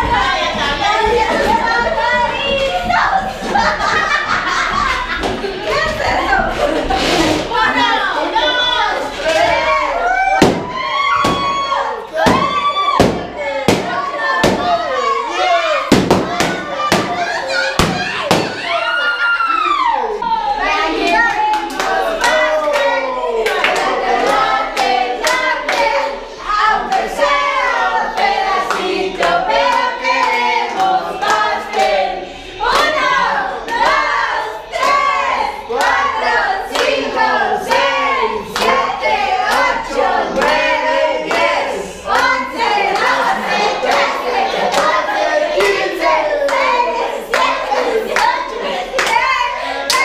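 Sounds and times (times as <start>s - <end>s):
group singing: 0.0s - 18.8s, 20.2s - 50.0s
people clapping in time: 21.1s - 25.9s, 45.6s - 50.0s
rhythmic hand clapping: 21.1s - 26.1s, 26.8s - 32.0s, 32.6s - 50.0s.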